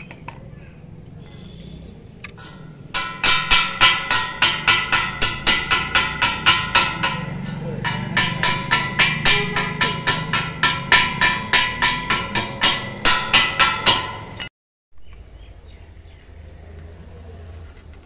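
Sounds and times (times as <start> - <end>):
hammer striking metal: 2.3 - 14.5.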